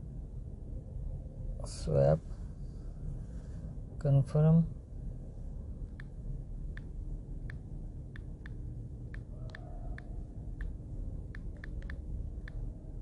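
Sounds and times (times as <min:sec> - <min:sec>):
low background rumble: 0:00.0 - 0:13.0
phone keyboard clicks: 0:08.2 - 0:12.6.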